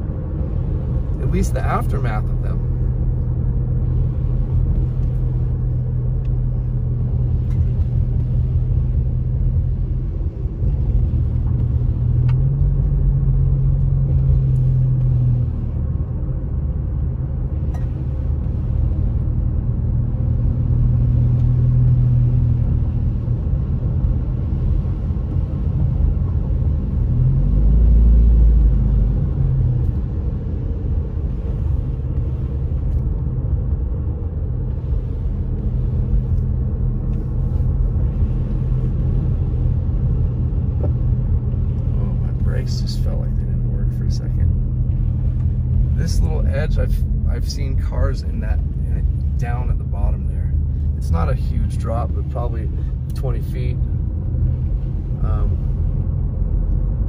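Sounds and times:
car engine: 0.0s - 57.0s.

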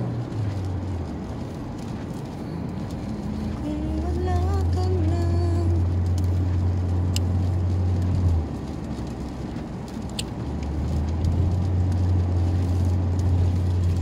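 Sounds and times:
low drone of tyres and engine: 0.0s - 14.0s
tyres hissing on wet road: 0.0s - 14.0s.

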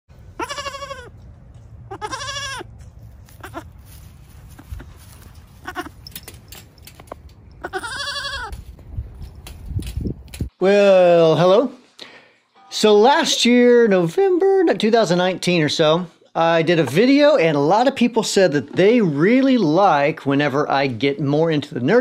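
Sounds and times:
steady low rumble: 0.1s - 10.5s
goats bleating: 0.4s - 1.1s, 1.9s - 2.7s, 3.3s - 3.7s, 5.6s - 6.0s, 7.6s - 8.6s.

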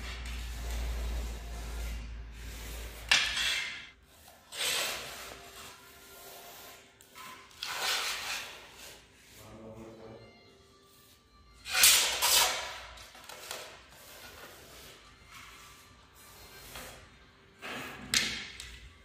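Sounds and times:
stone tiles scraping on wood: 2.4s - 5.2s.

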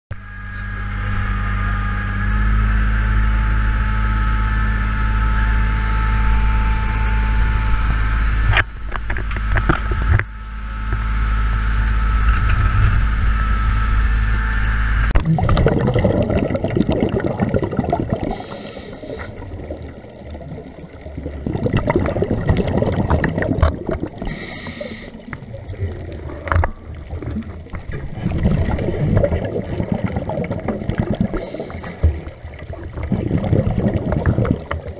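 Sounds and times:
whining tones: 0.1s - 15.2s
boat engine humming: 0.1s - 34.9s
underwater bubbling and rushing water: 0.8s - 34.9s.

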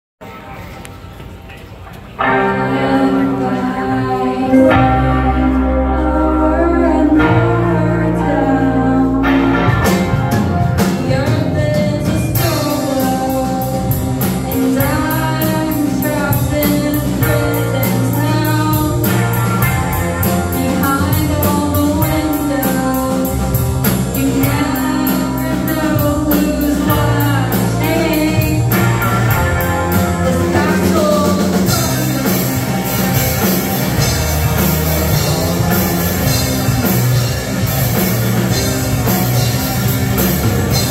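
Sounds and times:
live rock band: 2.0s - 40.9s
woman singing: 2.4s - 10.0s, 10.8s - 32.1s
drums steady beat: 9.4s - 40.9s.

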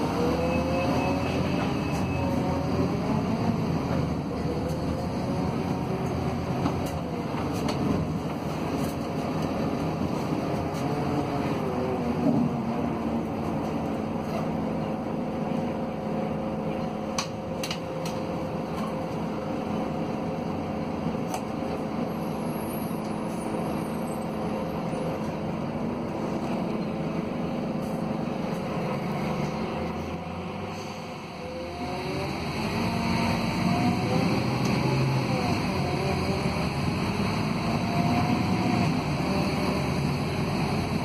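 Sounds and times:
bus diesel engine running: 0.0s - 41.0s.

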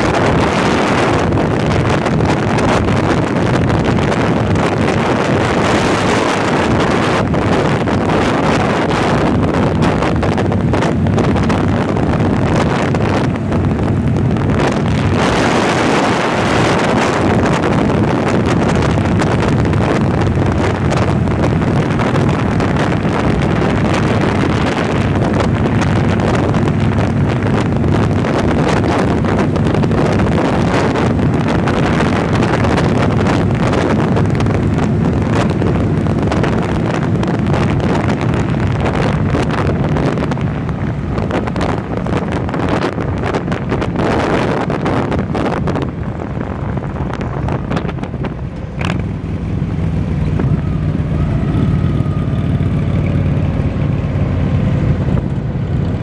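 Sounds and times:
motorcycle engine hum: 0.0s - 56.0s
wind buffeting microphone: 0.0s - 56.0s.

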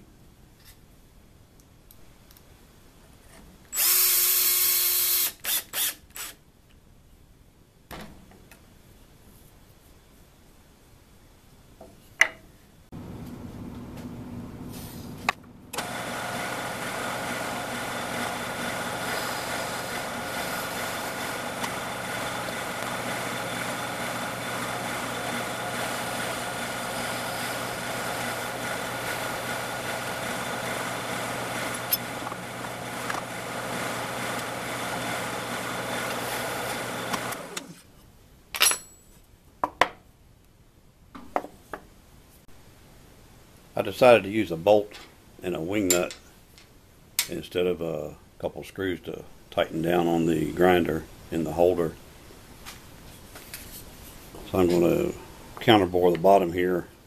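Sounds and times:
drill press boring into wood: 3.8s - 6.4s, 15.8s - 37.8s.

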